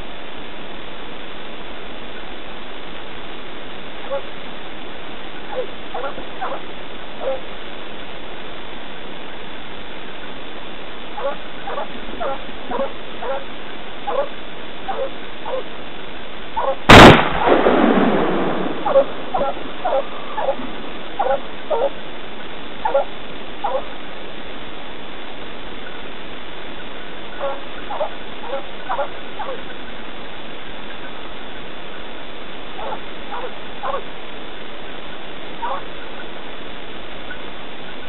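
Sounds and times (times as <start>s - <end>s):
dogs barking: 4.0s - 4.3s, 5.5s - 7.5s, 11.2s - 15.8s, 16.6s - 16.9s, 18.8s - 22.0s, 22.8s - 24.0s, 27.3s - 29.8s, 32.8s - 34.1s, 35.6s - 36.3s
loud gunshot echoing: 16.9s - 21.0s.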